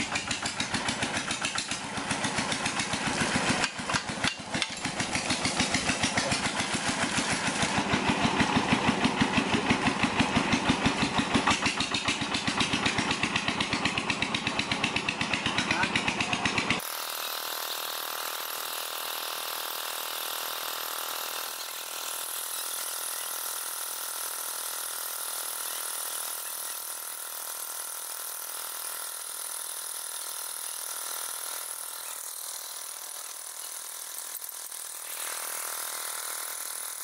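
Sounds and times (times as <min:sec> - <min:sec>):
small diesel pump engine running: 0:00.0 - 0:37.0.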